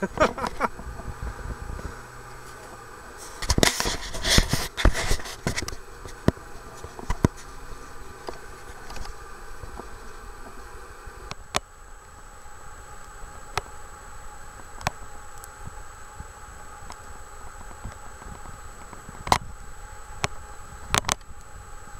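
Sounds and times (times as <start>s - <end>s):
wind on microphone: 0.0s - 2.5s.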